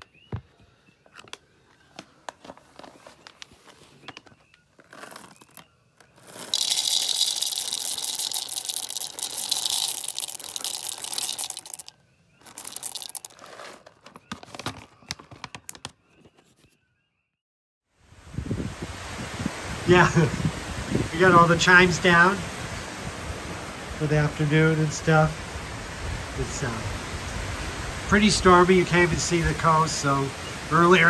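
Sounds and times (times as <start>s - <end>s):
clicks and crackling: 4.1s - 14.2s.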